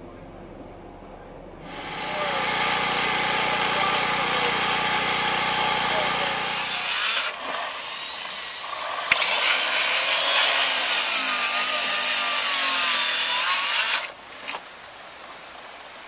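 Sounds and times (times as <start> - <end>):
electric planer shaving wood: 1.6 - 14.2.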